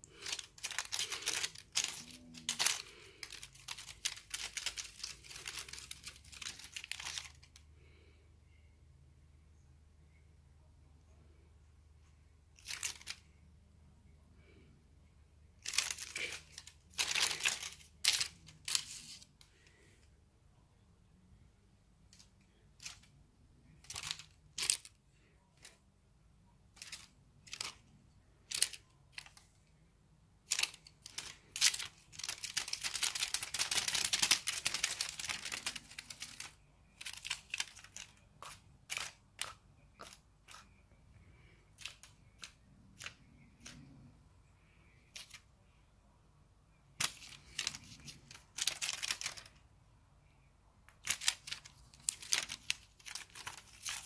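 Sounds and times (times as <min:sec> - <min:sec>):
plastic cat toy crinkling: 0:00.0 - 0:07.9, 0:12.5 - 0:13.3, 0:15.6 - 0:19.9, 0:22.0 - 0:25.8, 0:26.6 - 0:29.8, 0:30.4 - 0:45.6, 0:47.0 - 0:49.6, 0:50.9 - 0:54.0.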